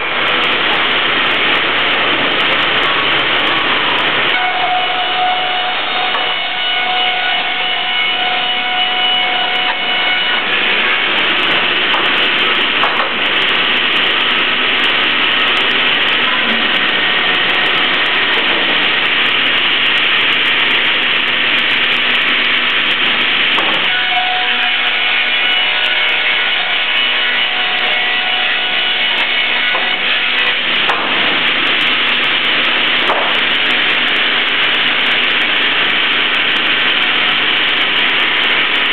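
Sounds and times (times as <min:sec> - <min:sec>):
circular saw blades ripping boards: 0:21.5 - 0:38.9.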